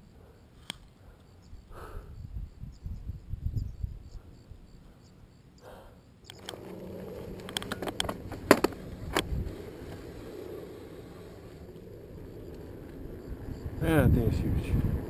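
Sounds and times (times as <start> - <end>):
bicycle tyre and wind noise: 1.6 - 5.0, 6.3 - 15.0
bike clicks and knocks: 6.3 - 10.0.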